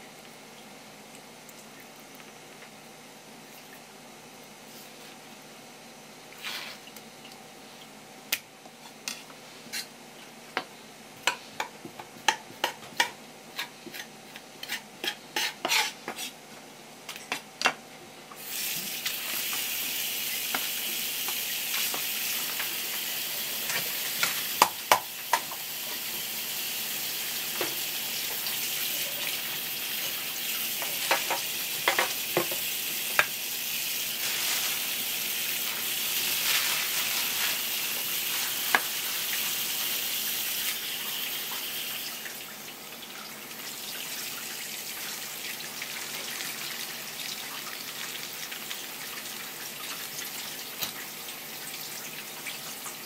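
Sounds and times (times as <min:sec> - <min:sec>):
frying sizzle: 0:18.4 - 0:53.0.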